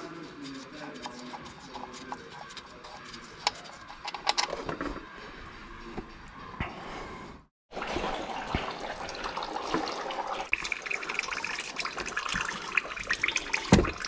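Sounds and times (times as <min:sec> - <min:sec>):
oil trickling into plastic pan: 0:08.5 - 0:14.0.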